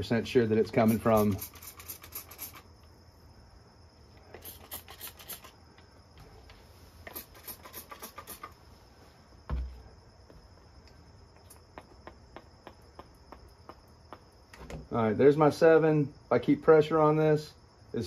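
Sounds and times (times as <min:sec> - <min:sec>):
dull thump: 0:09.4 - 0:10.4.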